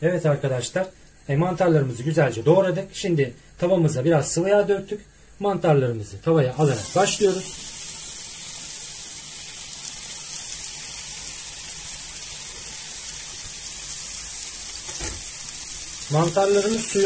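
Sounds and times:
mushrooms sizzling in a frying pan: 6.4 - 17.0.

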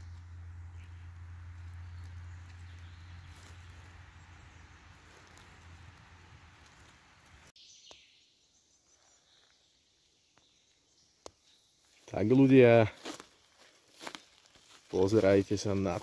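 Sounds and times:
faint bird chirps: 7.6 - 12.4.

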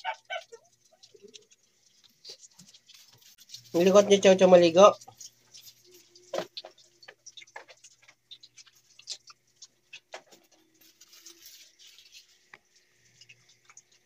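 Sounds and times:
water splashing on tiled floor: 0.0 - 10.8.

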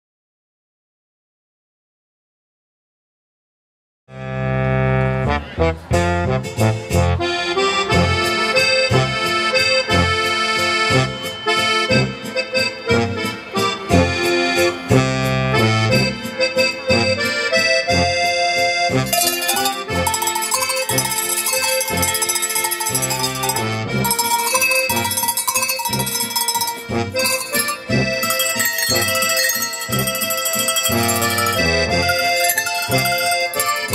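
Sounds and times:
oom-pah folk music with accordion: 4.1 - 33.9
bright ringing bells: 19.0 - 33.9.

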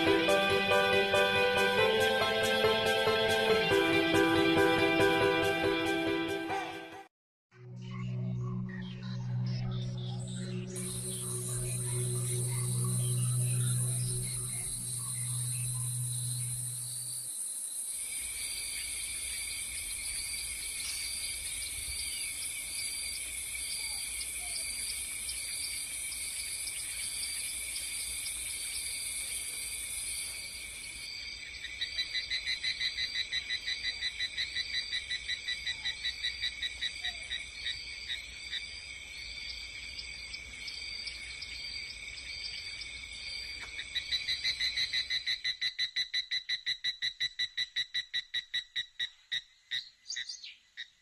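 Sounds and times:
rapid pulsing insect call: 10.2 - 51.0
insects buzzing chorus: 10.8 - 45.3.

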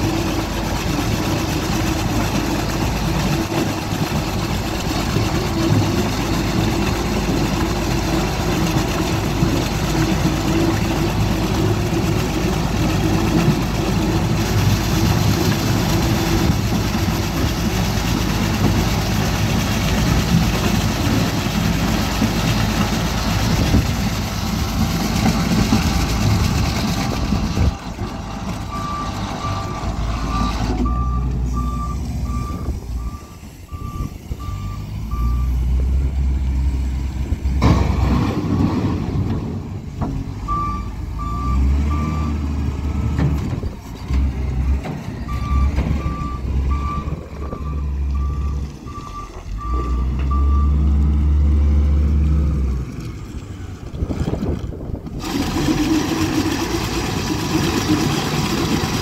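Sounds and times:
loader diesel engine under load: 0.0 - 59.0
reversing alarm beeping: 28.6 - 35.6, 40.4 - 42.4, 45.2 - 50.9.

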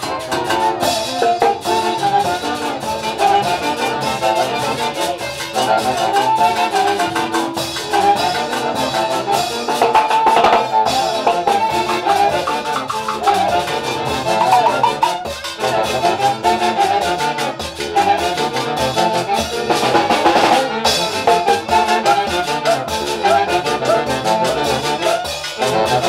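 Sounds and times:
sharp percussion stroke: 0.0 - 4.3, 7.0 - 16.7, 18.6 - 26.0
orchestra dance music: 10.8 - 15.3.

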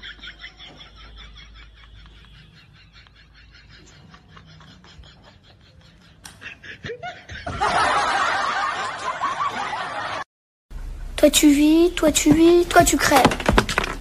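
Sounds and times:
people laughing: 0.0 - 10.3.

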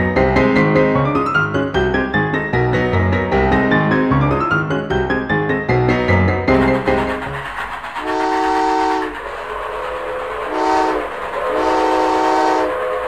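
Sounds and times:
train running noise: 0.0 - 13.0
train whistle blasts: 8.0 - 9.2, 10.5 - 13.0.

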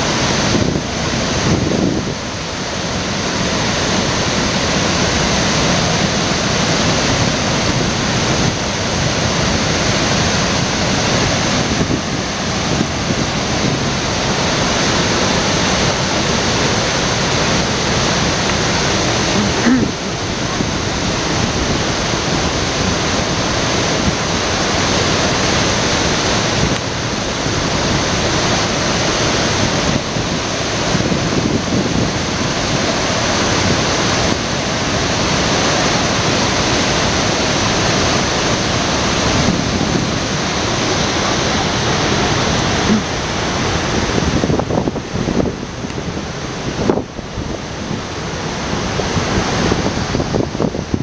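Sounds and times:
waterfall rushing: 0.0 - 51.0.

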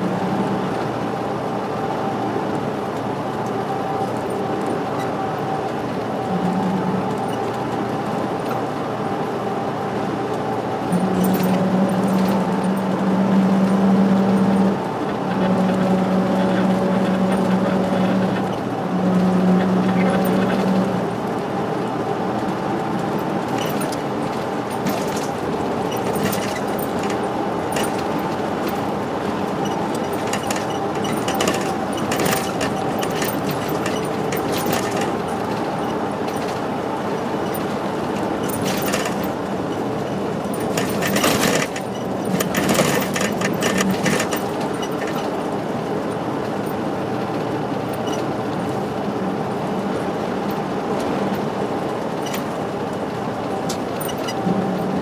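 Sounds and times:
bus engine and road drone: 0.0 - 55.0
bodywork rattles and clicks: 10.9 - 21.4, 22.3 - 49.2, 50.4 - 55.0.

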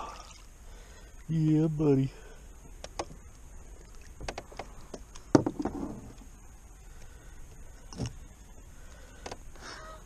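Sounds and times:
sharp clicks and knocks handling fish: 2.8 - 3.2, 4.2 - 6.2, 7.5 - 8.2, 9.1 - 9.5.

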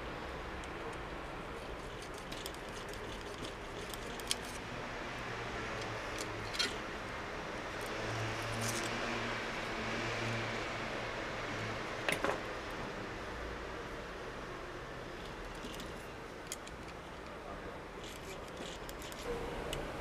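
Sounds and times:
metal punch clicks and scrapes: 6.1 - 6.8.

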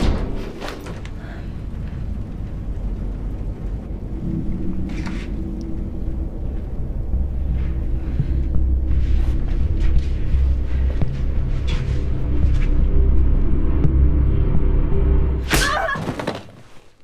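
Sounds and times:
deep rumble: 0.0 - 15.5
steady low tone: 0.0 - 15.5.

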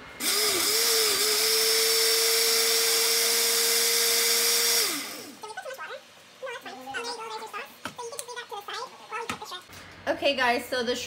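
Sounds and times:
blender motor whining: 0.2 - 5.4.

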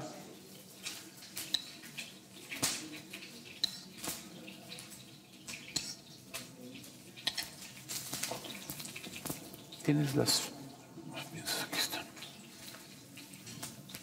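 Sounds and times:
low kitchen background noise: 0.0 - 14.0
spoon clinking against ceramic: 3.4 - 4.0, 5.6 - 6.2, 7.2 - 7.7.

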